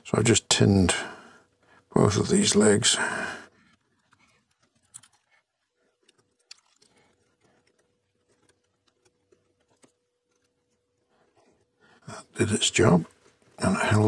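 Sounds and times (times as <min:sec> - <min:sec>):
faint steady hum: 0:00.0 - 0:14.0
small clicks and taps: 0:03.6 - 0:11.7.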